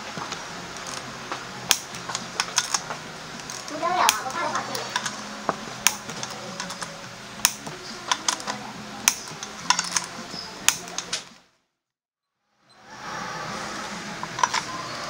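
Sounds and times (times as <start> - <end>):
metal clicks and taps from tools: 1.7 - 5.2, 5.8 - 11.3.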